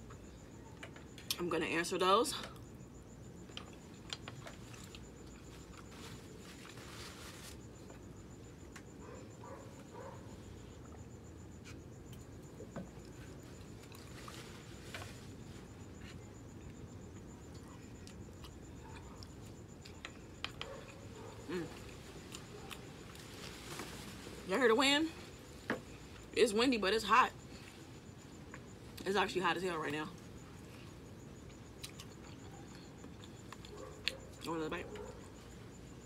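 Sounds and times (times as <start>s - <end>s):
person chewing: 31.7s - 34.2s.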